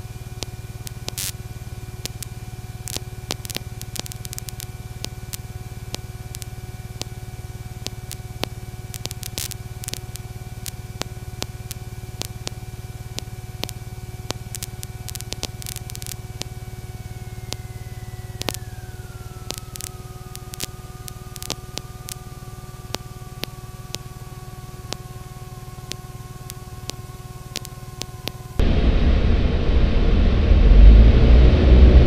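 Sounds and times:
crackling static clicks: 0.0 - 28.8
propeller aircraft engine droning: 27.4 - 32.0.

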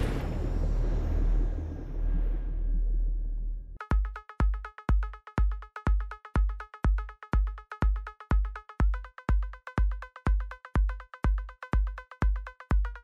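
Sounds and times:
low rumble: 0.0 - 3.8
heavy kick drum beat: 3.8 - 13.0.

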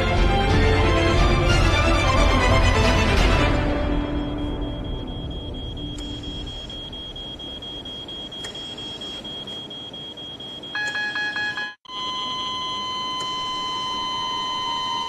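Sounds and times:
rapidly pulsing alarm chord: 0.0 - 13.8
high repeating alarm tone: 3.5 - 15.0
continuous flatline tone: 3.7 - 15.0.

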